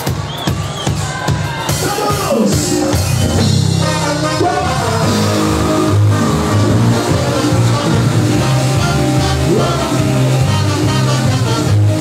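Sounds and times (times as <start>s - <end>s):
live cumbia band playing: 0.0s - 12.0s
electric bass line: 2.8s - 12.0s.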